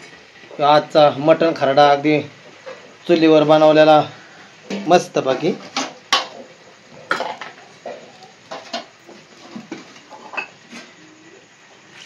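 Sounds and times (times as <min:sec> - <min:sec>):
metal utensils clinking on pots: 0:04.6 - 0:10.9.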